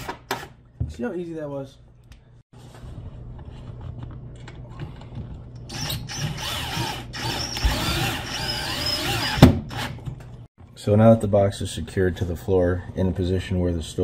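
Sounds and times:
cordless drill whining: 5.7s - 10.0s.

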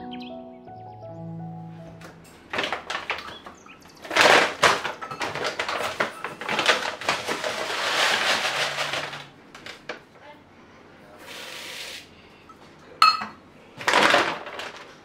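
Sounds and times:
plastic bag crinkling: 2.5s - 10.0s
rice pouring into plastic bowl: 4.1s - 9.8s.

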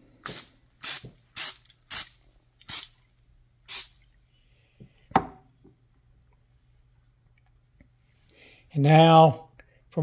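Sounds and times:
aerosol spray can spraying: 0.2s - 3.0s, 3.7s - 4.0s.

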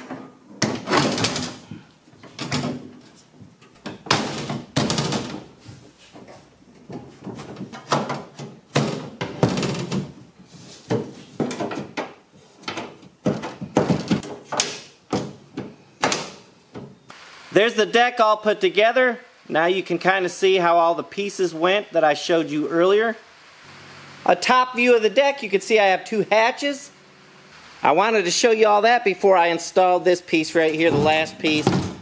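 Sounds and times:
aluminum panels knocking and clanking: 0.0s - 5.6s, 6.2s - 10.2s, 10.8s - 17.0s.

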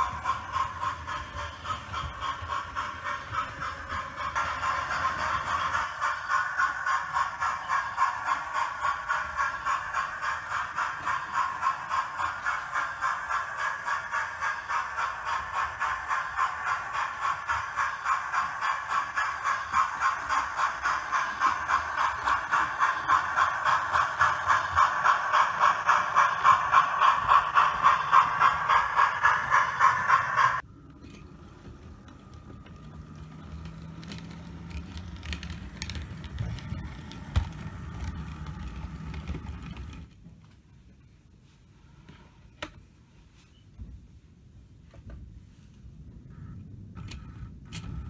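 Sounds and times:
model locomotive hum: 0.0s - 40.2s, 46.1s - 48.0s
model train clicking on track: 0.0s - 40.2s, 46.4s - 48.0s.

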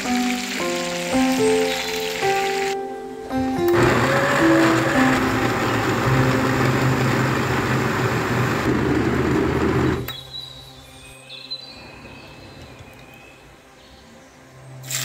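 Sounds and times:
blender motor whirring: 3.6s - 10.1s.

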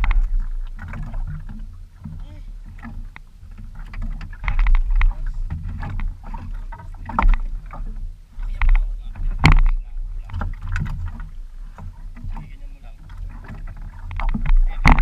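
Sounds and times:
water splashing against boat hull: 0.0s - 15.0s
steady low rumble: 4.3s - 13.2s.

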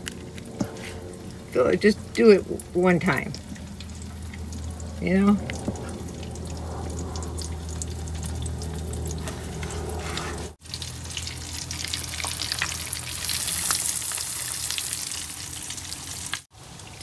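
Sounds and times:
low hum: 0.0s - 13.6s
bacon sizzling in oil: 1.1s - 17.0s.

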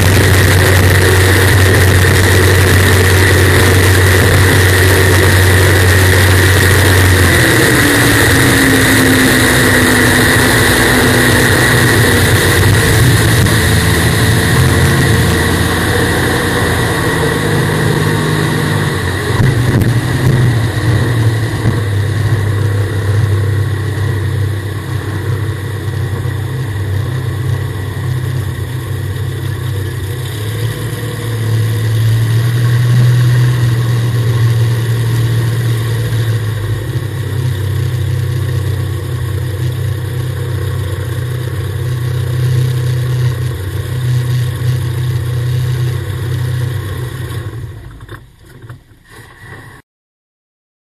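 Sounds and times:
jet boat engine droning: 0.0s - 49.8s.

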